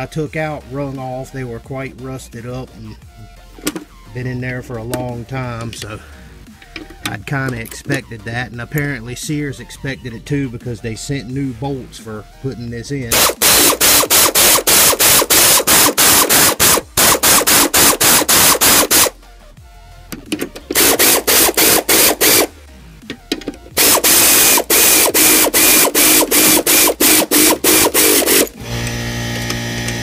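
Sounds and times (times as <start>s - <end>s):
power ratchet clicking: 13.1s - 19.1s, 20.4s - 22.5s, 23.8s - 30.0s.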